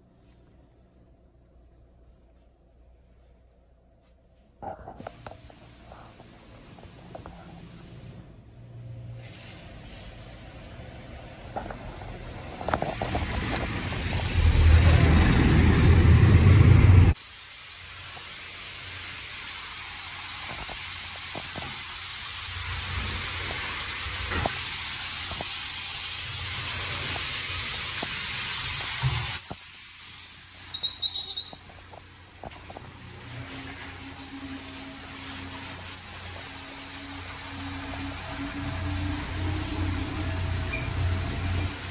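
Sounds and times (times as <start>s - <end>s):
spray jets hissing: 9.1s - 41.9s
spray drumming on car: 9.2s - 41.9s
short high squeaks: 29.3s - 31.7s.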